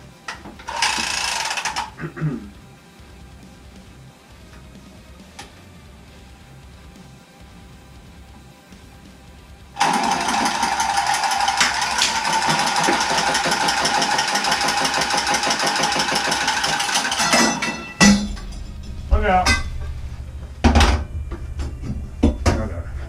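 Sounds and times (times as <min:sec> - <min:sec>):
power tool motor running: 0:00.7 - 0:01.9, 0:09.8 - 0:17.5.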